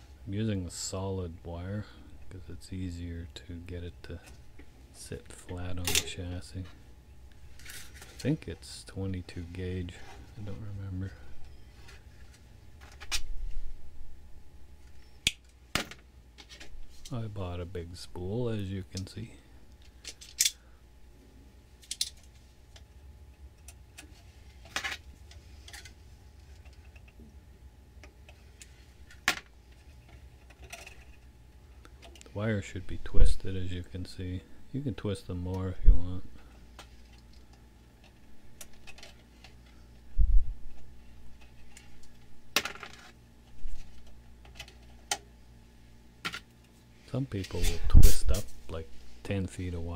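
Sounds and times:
faint low hum: 0.0s - 49.9s.

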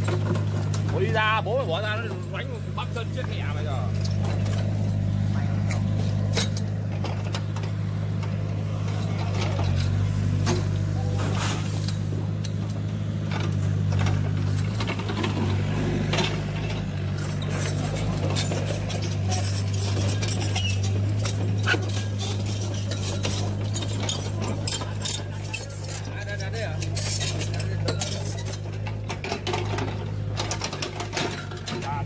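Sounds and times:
small clicks and rattles: 11.8s - 32.0s.

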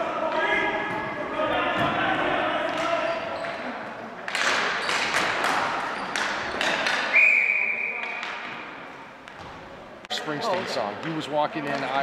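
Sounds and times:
hockey sticks clacking: 2.6s - 7.2s, 8.0s - 9.4s, 10.4s - 12.0s.

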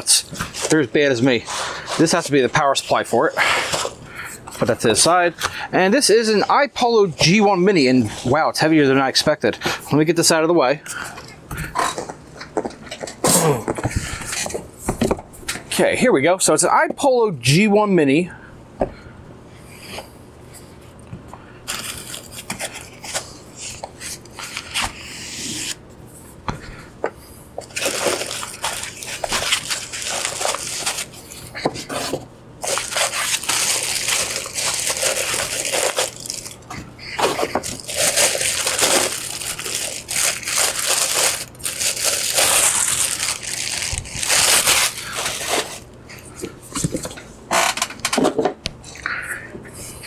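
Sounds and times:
plastic bag crinkling: 27.6s - 45.9s.

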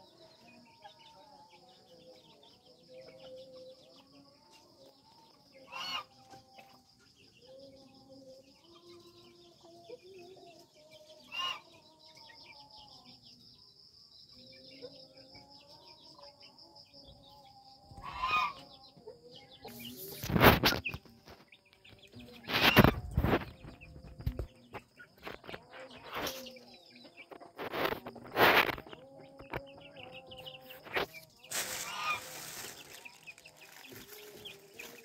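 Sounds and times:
rooster clucking: 18.0s - 18.7s, 31.0s - 33.0s.

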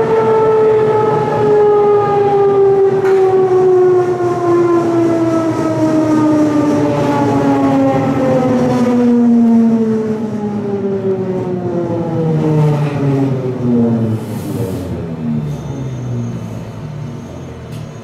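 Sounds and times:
train traction motors whining: 0.0s - 18.0s
train running gear rumble: 12.8s - 18.0s.

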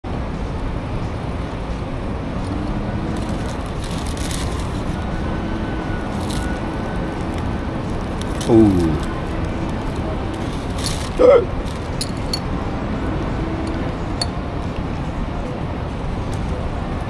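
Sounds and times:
street traffic noise: 0.0s - 17.0s
paper wrapper crinkling: 3.1s - 12.4s.

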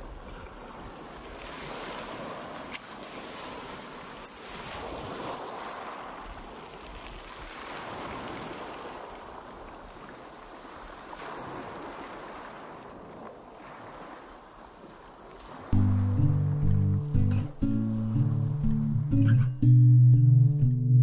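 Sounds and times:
waves breaking on rocky shore: 0.0s - 15.8s.

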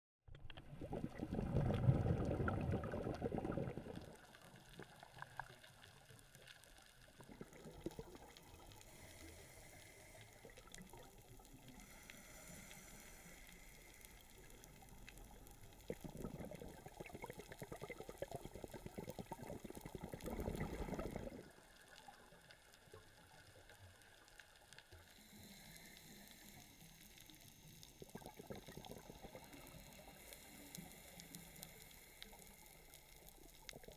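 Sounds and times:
regulator exhale bubbles rushing: 0.6s - 5.0s, 7.1s - 9.1s, 14.2s - 21.6s, 28.0s - 32.6s
faint underwater hiss: 0.6s - 33.9s.

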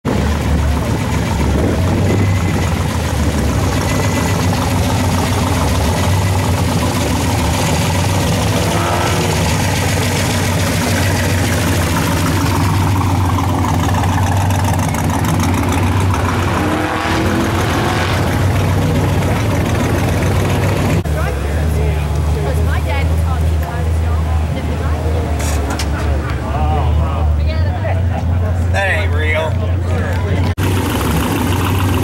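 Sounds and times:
truck engine idling: 0.0s - 32.0s.

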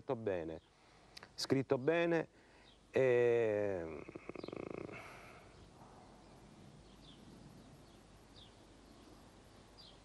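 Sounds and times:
faint room hiss: 0.0s - 10.0s
man's creaky hesitation hum: 3.8s - 5.5s.

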